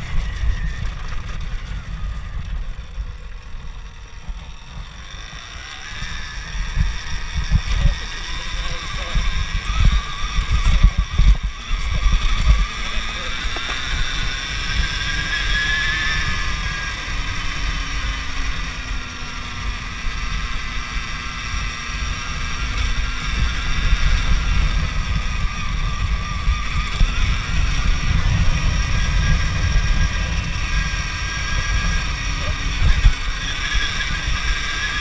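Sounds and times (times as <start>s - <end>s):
low rumble: 0.0s - 14.9s, 23.3s - 33.3s
electric motorbike motor whine: 0.0s - 35.0s.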